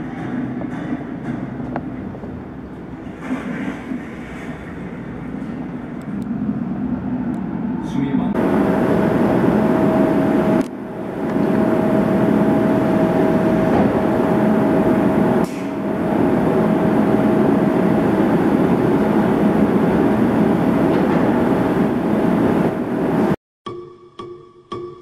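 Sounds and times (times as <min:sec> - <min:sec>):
high whine: 0:06.0 - 0:23.4.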